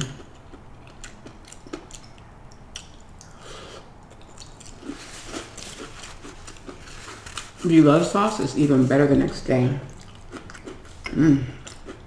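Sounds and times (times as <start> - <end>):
person chewing crunchy food: 0.0 - 8.7, 9.9 - 12.0.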